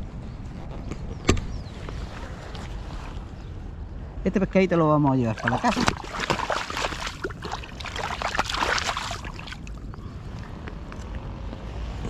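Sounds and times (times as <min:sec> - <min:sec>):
water splashing and sloshing: 0:05.2 - 0:10.0.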